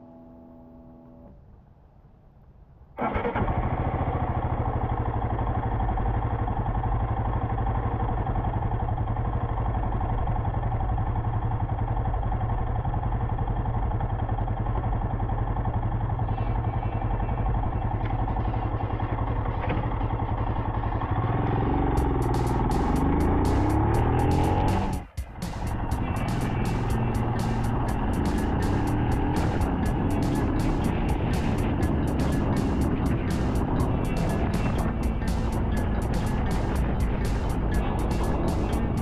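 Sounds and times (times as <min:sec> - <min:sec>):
motorcycle engine idling: 0:03.5 - 0:39.0
music: 0:21.9 - 0:39.0.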